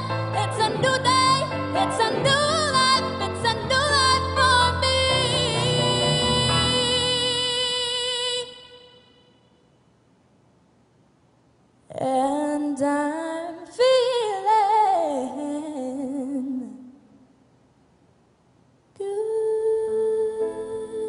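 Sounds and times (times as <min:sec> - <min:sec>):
piano: 0:00.0 - 0:08.4, 0:19.8 - 0:21.0
girl singing with vibrato: 0:00.0 - 0:09.3, 0:11.9 - 0:17.1, 0:19.0 - 0:21.0.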